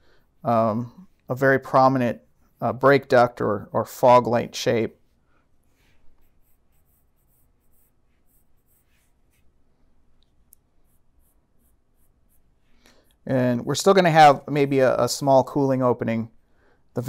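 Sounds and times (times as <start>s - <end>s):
pen scratching on paper: 5.7s - 9.5s, 10.8s - 12.6s.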